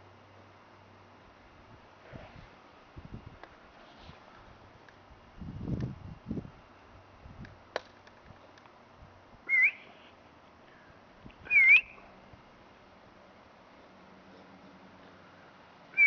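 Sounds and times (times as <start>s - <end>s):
person whistling short notes: 9.5s - 10.1s, 11.5s - 12.0s.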